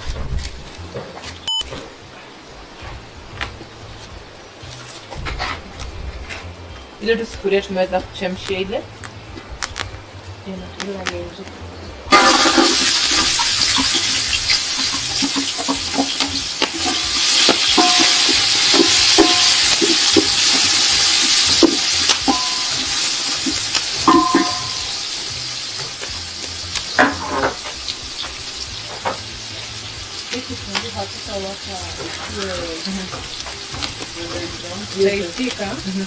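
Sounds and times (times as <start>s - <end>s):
food frying in oil: 12.1s - 36.0s.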